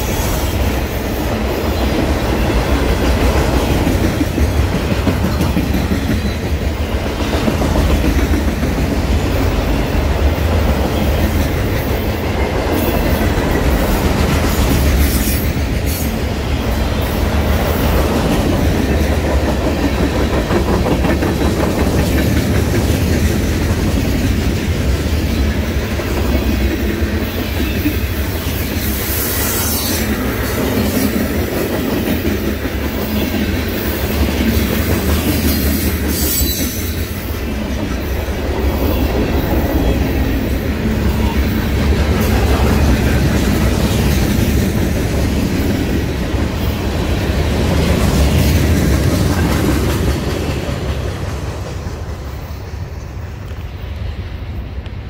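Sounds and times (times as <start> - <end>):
freight train rumbling on rails: 0.0 - 55.0.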